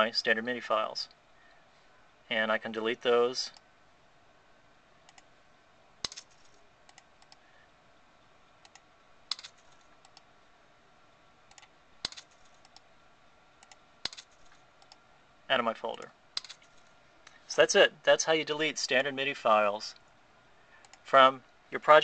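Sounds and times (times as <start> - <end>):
computer mouse clicks: 5.1 - 5.3, 6.0 - 7.4, 8.6 - 10.3, 11.5 - 12.9, 13.6 - 15.0, 15.9 - 17.4, 20.8 - 21.0.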